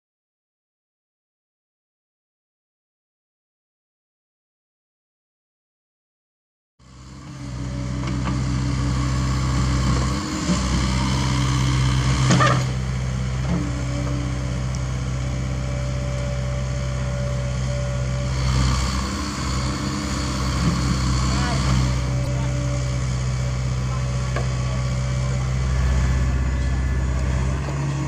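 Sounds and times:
excavator diesel engine running: 0:06.8 - 0:28.0.

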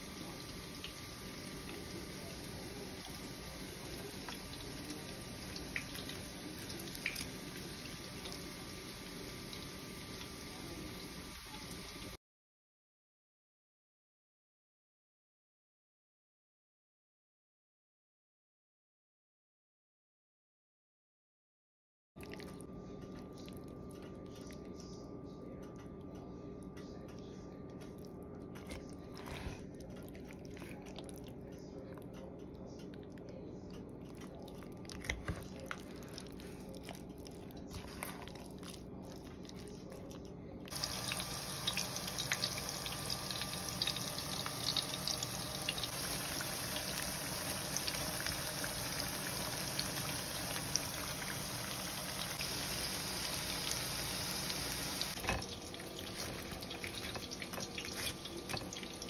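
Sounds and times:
deep-frying sizzle in oil: 0:00.0 - 0:12.2, 0:40.7 - 0:59.0.

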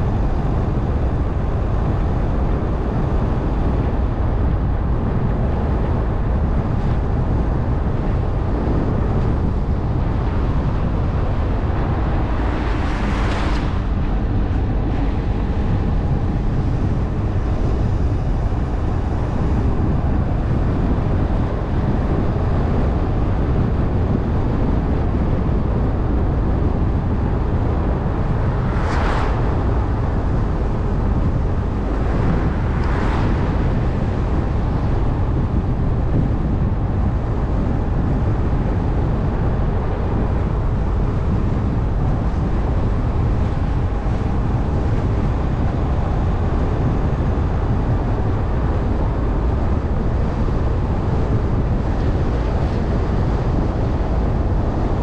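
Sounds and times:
car driving on wet road: 0:08.5 - 0:23.0, 0:27.4 - 0:47.0.

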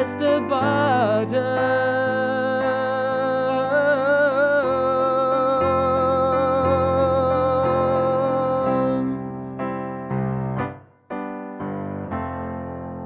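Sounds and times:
person singing with vibrato: 0:00.0 - 0:09.7
digital piano chords: 0:00.0 - 0:13.0.

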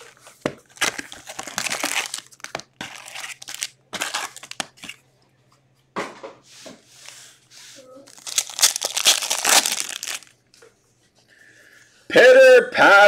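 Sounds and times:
wrappers tearing and crinkling: 0:00.7 - 0:04.9, 0:08.1 - 0:10.4.

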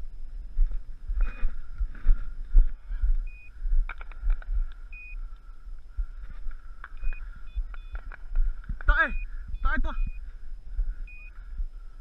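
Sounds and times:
thumps and rumble of walking: 0:00.4 - 0:04.8
short high beeps: 0:09.1 - 0:10.2.

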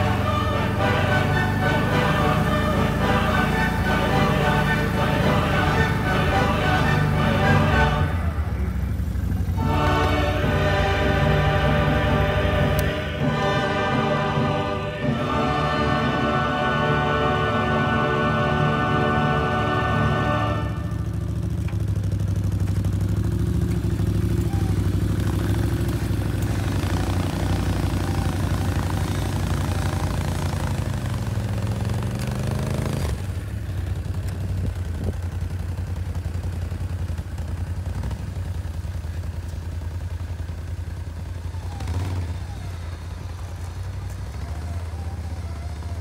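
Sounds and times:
atv engine running: 0:00.0 - 0:46.0.

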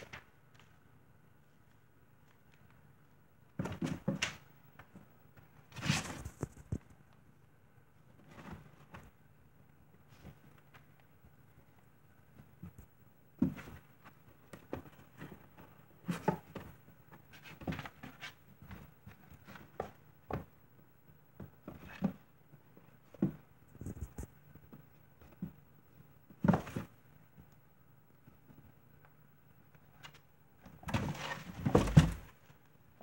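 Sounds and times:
kittens scuffling in cardboard box: 0:05.5 - 0:06.9, 0:30.6 - 0:32.6.

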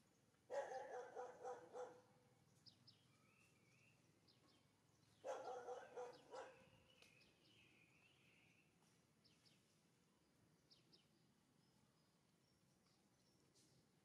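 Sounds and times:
small birds chirping: 0:00.0 - 0:14.0
dog barking: 0:00.5 - 0:02.1, 0:05.2 - 0:06.7.

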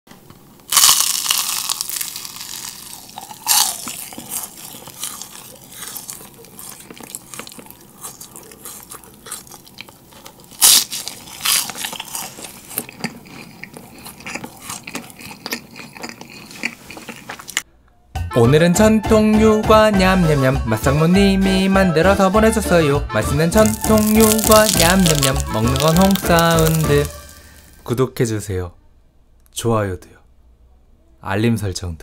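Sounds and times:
crisp cracker crunching: 0:00.6 - 0:17.6, 0:23.5 - 0:27.9.

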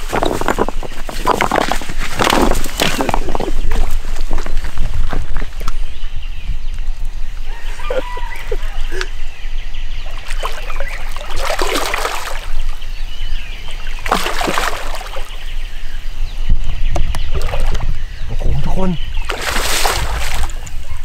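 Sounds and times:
water splashing and sloshing: 0:00.0 - 0:04.5, 0:10.0 - 0:12.8, 0:13.6 - 0:15.5, 0:17.0 - 0:18.0, 0:19.2 - 0:21.0.

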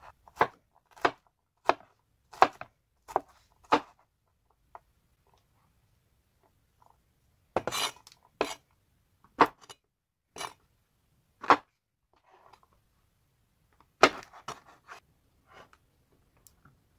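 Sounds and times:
knife chopping on wooden board: 0:00.3 - 0:04.0, 0:07.6 - 0:08.6, 0:14.0 - 0:14.6.

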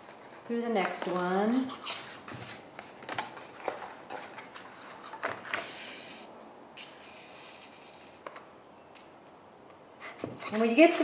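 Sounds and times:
paper rustling: 0:00.0 - 0:06.2.

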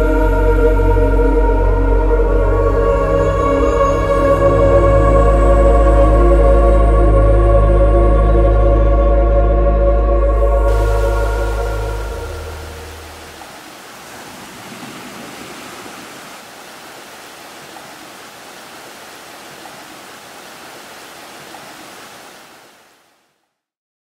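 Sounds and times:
waterfall rushing: 0:10.6 - 0:23.3.

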